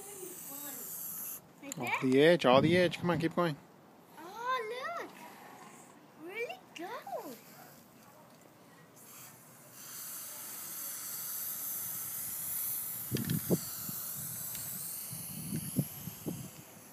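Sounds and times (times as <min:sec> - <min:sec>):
spray paint can hissing: 0:00.0 - 0:01.4, 0:09.0 - 0:16.9.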